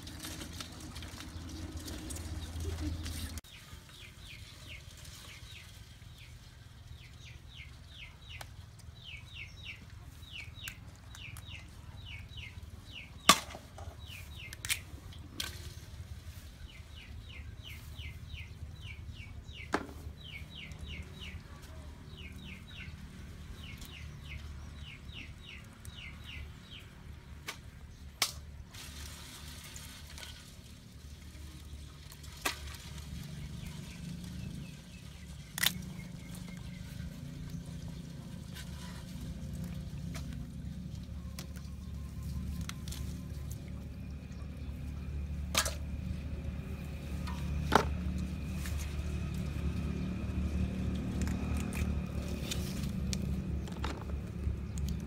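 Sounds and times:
low hum: 28.9s - 55.0s.

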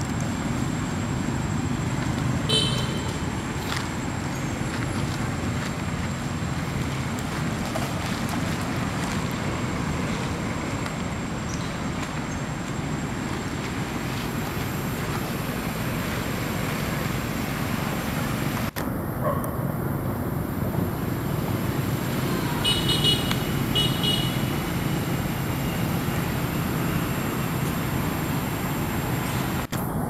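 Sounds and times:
outdoor rumble and hiss: 0.0s - 30.0s.

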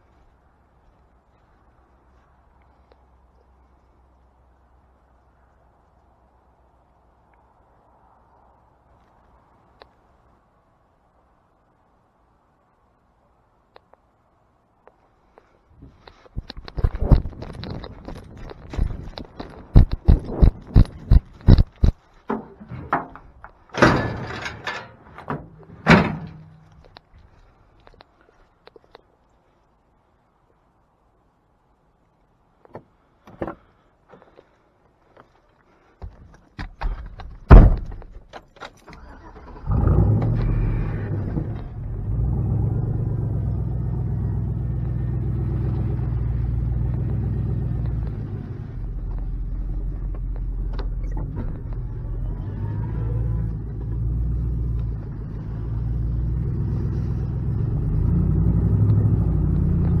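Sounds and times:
handling knocks and clunks: 15.8s - 27.1s, 32.6s - 34.5s, 36.0s - 39.3s.

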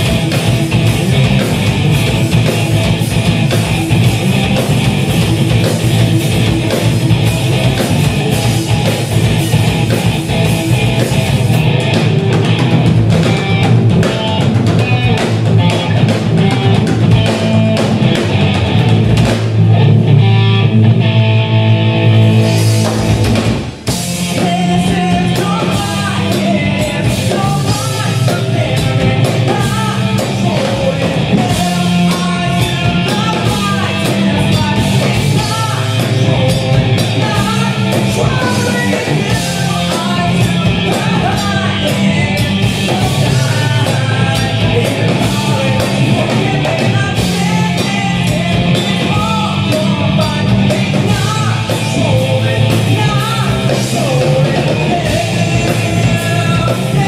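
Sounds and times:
rock band playing: 0.0s - 57.0s
person singing: 24.1s - 57.0s.

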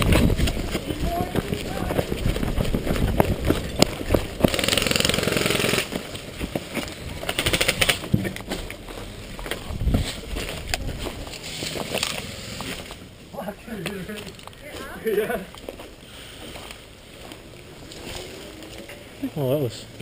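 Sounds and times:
airsoft gunfire bursts: 4.5s - 5.9s, 7.4s - 8.0s
footsteps in grass: 8.4s - 13.2s, 14.0s - 19.2s.

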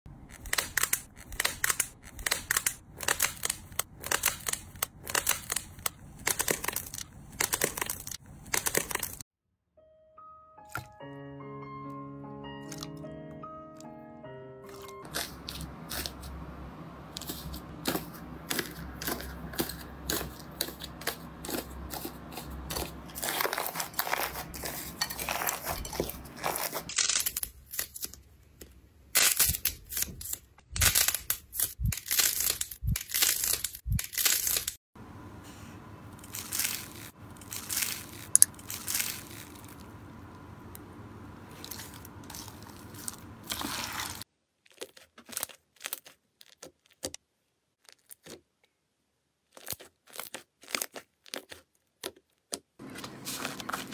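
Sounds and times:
slime crackling and snapping: 41.6s - 47.2s, 49.5s - 52.6s.

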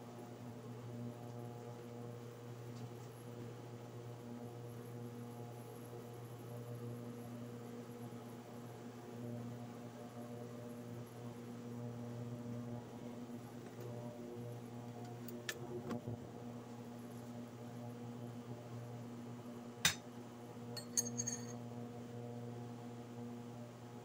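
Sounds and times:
induction cooktop hum: 18.4s - 23.5s.

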